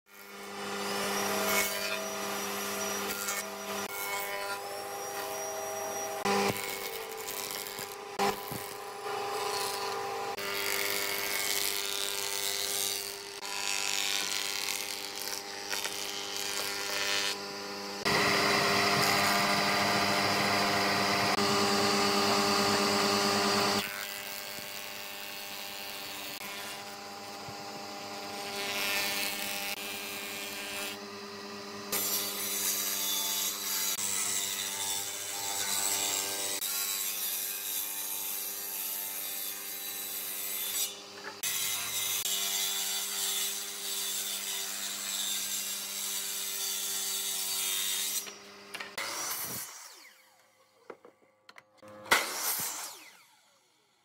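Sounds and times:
wooden board being planed: 0.3s - 34.0s
planing machine motor hum: 17.4s - 23.8s.

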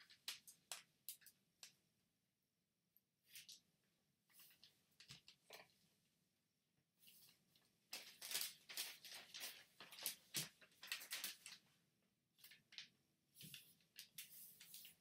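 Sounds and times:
paper rustling and crinkling: 7.1s - 11.7s, 12.4s - 15.0s.

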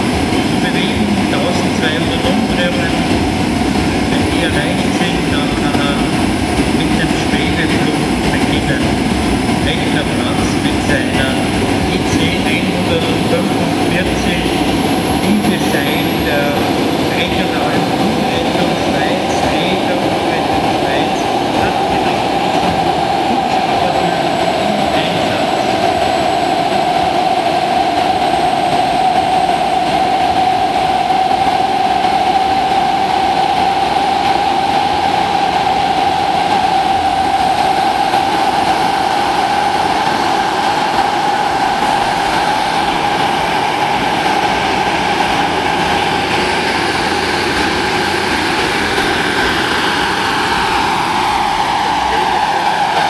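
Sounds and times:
helicopter rotor turning: 36.0s - 53.0s.

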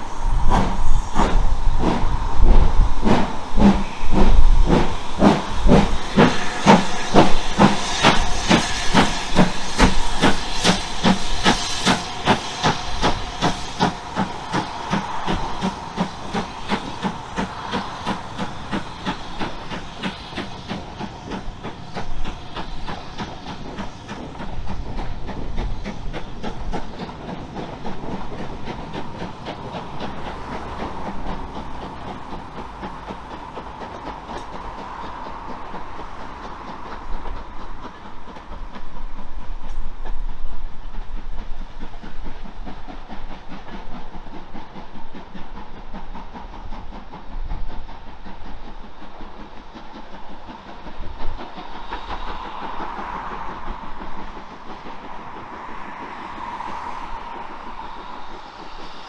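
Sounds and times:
steam hissing: 0.0s - 59.0s
steam locomotive exhaust beats: 0.0s - 59.0s.

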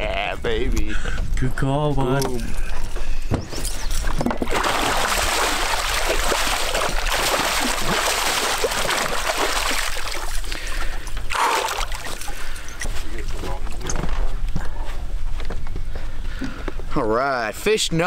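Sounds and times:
fish thrashing and splashing: 4.1s - 12.6s.

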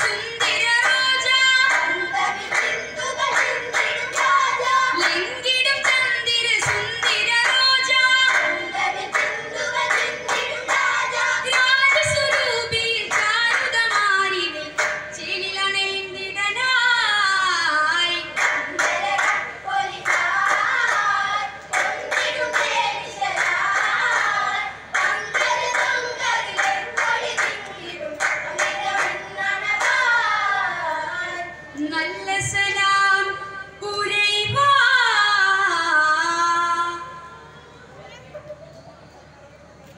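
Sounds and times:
hand clapping: 0.0s - 15.2s, 18.3s - 30.0s
boys singing in chorus: 0.0s - 15.4s, 18.3s - 31.5s.

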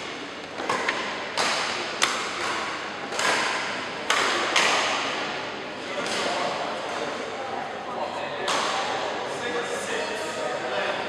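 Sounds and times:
badminton rackets striking shuttlecocks: 0.6s - 5.0s.

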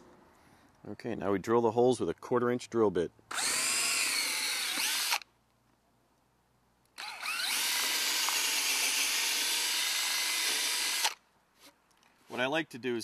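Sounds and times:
cordless drill motor whine: 3.3s - 5.2s, 7.0s - 11.2s.

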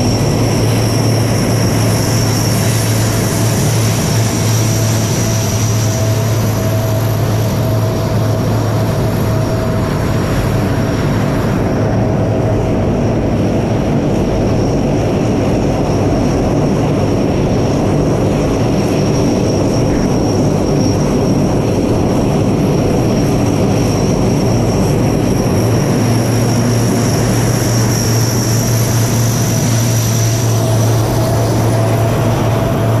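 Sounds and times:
high whine: 0.0s - 33.0s
propeller drone: 0.0s - 33.0s.

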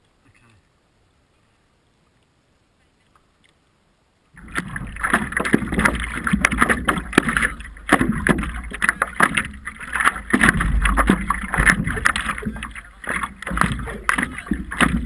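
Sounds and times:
wind rumbling on microphone: 4.3s - 15.0s
sharp knocks: 4.4s - 15.0s
water splashing against paddleboard: 4.4s - 15.0s.

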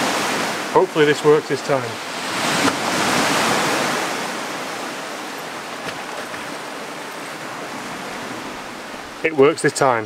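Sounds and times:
sea surf on rocky shore: 0.0s - 10.0s.

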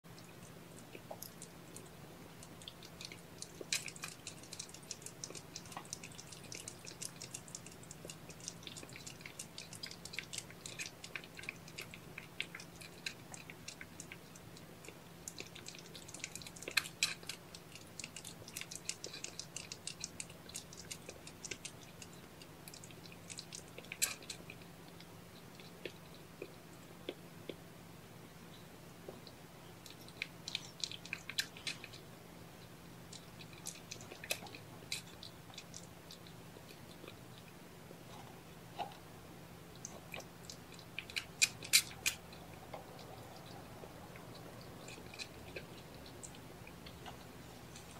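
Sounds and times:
cats licking and grooming: 0.0s - 47.9s.

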